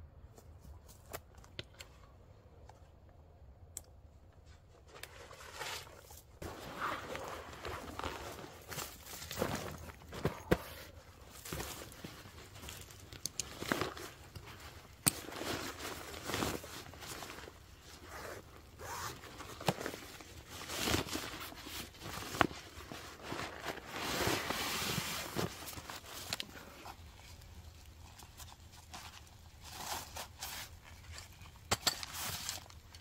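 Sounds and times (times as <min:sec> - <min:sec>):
fabric rustling and swishing: 0:05.3 - 0:12.9, 0:20.0 - 0:26.3
stuff sack dragged out of pack: 0:06.4 - 0:09.9
zipper: 0:18.0 - 0:19.2.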